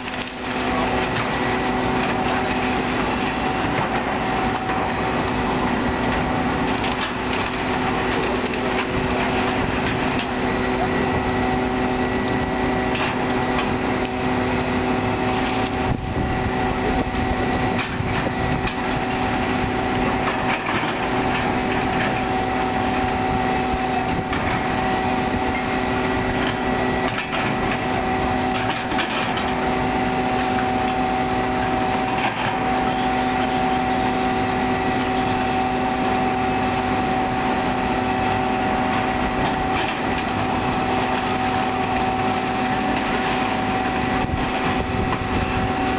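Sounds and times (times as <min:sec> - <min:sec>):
excavator diesel engines running: 0:00.0 - 0:45.9
wind noise on microphone: 0:13.8 - 0:34.9, 0:35.5 - 0:45.9.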